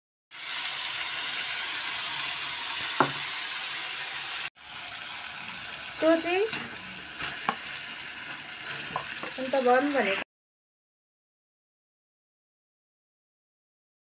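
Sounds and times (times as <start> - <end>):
tomatoes sizzling in oil: 0.3 - 10.2.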